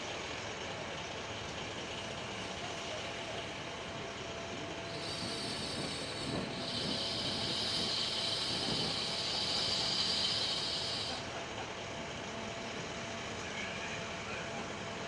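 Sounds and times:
fire engine humming: 0:00.0 - 0:15.0
hiss: 0:04.9 - 0:11.3.

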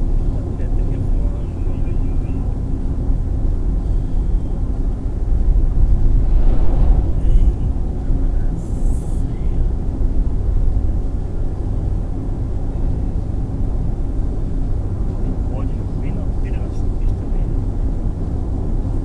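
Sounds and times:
car cabin road rumble: 0:00.0 - 0:19.0
oncoming vehicle passing: 0:05.0 - 0:09.6.

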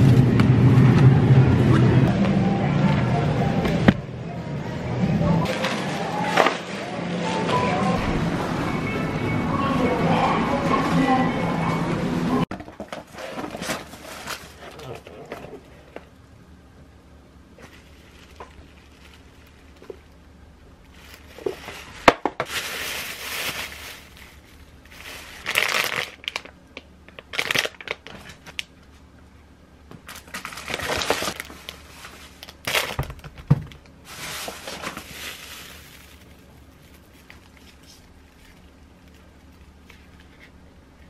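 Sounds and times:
plastic bags crinkling: 0:12.9 - 0:15.3, 0:17.6 - 0:28.7, 0:30.0 - 0:40.3.

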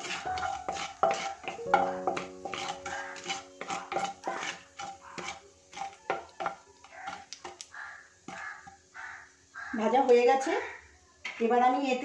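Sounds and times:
spatula scraping and tapping a wok: 0:00.0 - 0:09.2.

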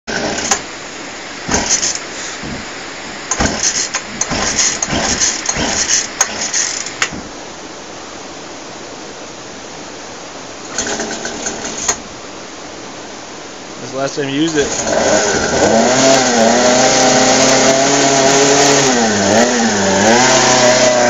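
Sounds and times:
small engine turning over: 0:00.1 - 0:00.6, 0:01.5 - 0:02.7, 0:03.3 - 0:07.3, 0:10.7 - 0:12.0, 0:14.6 - 0:21.0
recoil starter cord pulled: 0:00.1 - 0:00.7, 0:01.5 - 0:02.7, 0:03.3 - 0:07.3, 0:10.7 - 0:12.0, 0:14.6 - 0:15.8.

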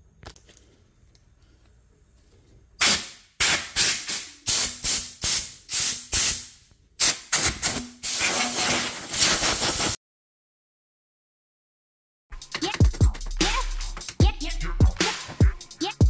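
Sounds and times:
spray paint can hissing: 0:02.8 - 0:10.0.

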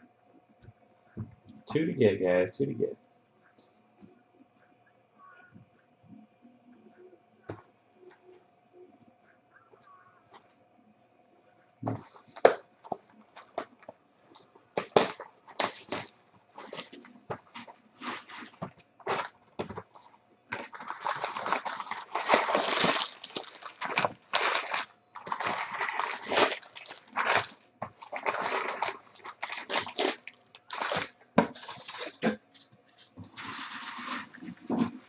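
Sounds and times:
foil packs and cellophane crinkling: 0:11.9 - 0:35.0.

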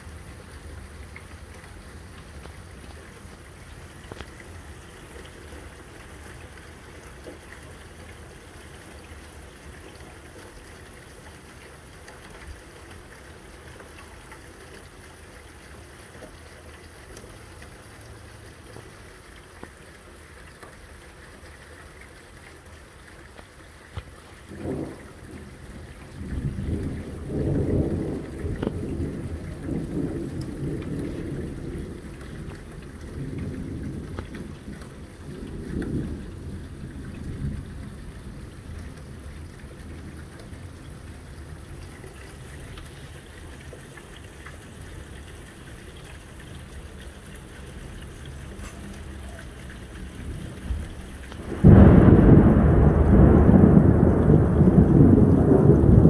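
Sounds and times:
rain falling: 0:00.0 - 0:56.0
thunder rumbling: 0:24.5 - 0:41.9, 0:48.3 - 0:56.0.

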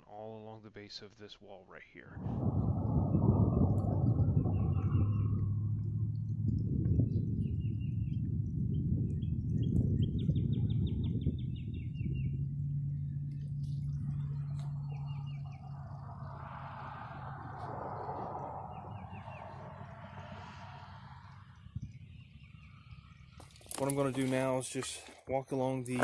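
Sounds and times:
low outdoor rumble: 0:01.9 - 0:26.0
small birds chirping: 0:06.8 - 0:26.0.

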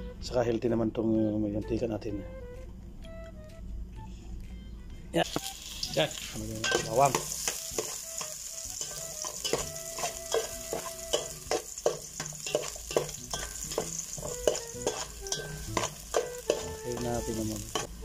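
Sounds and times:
garlic sizzling in hot oil: 0:05.2 - 0:18.0
metal spoon scraping a pot: 0:06.6 - 0:16.7.

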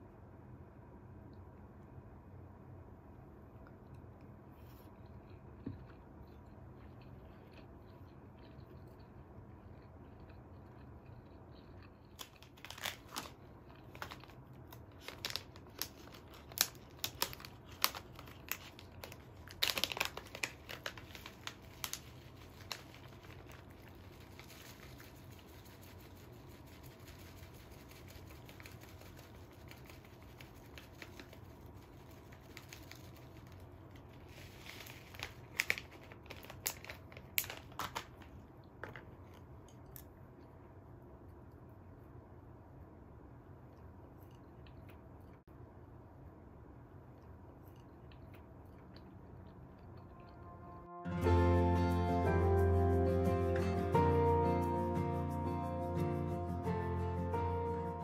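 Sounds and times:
plastic packet crinkling: 0:12.1 - 0:39.1
seasoning sprinkled over rice: 0:13.9 - 0:38.0.

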